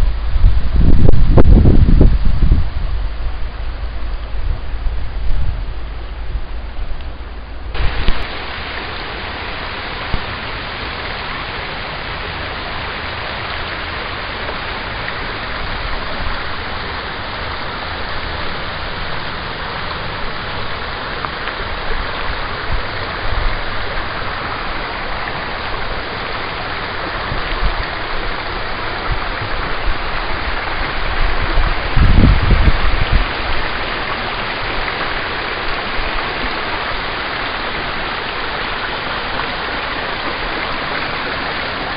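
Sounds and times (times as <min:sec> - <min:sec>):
low rumble on microphone: 0:00.0 - 0:34.5
brook water rushing: 0:00.0 - 0:41.9.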